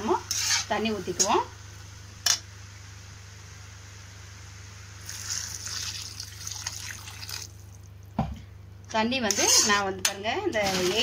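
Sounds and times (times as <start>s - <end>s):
water poured into a pan: 5.0s - 7.9s.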